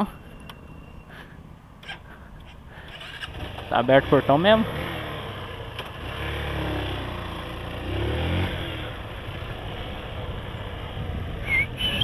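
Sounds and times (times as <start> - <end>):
small motorcycle engine: 2.9 - 11.2.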